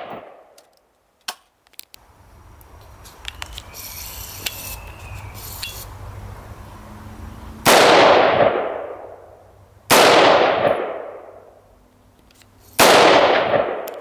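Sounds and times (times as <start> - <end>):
rifle shots with echo: 0.0 - 0.5, 7.6 - 9.2, 9.9 - 11.4, 12.8 - 14.0.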